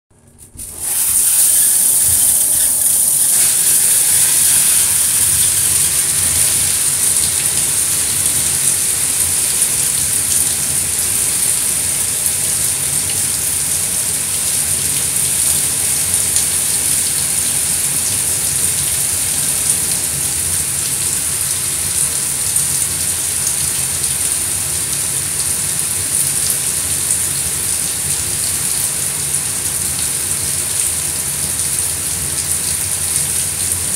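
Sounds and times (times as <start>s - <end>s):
shower spray pattering on plastic: 0.4s - 10.8s.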